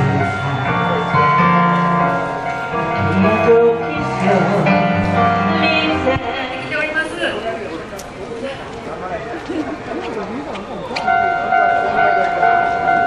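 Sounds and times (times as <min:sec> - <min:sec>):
song with bass and singing: 0:00.0 - 0:07.1.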